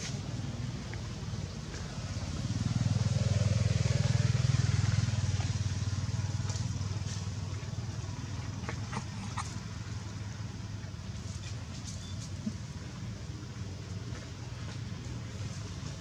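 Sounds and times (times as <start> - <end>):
distant engine passing: 0.0 - 11.5.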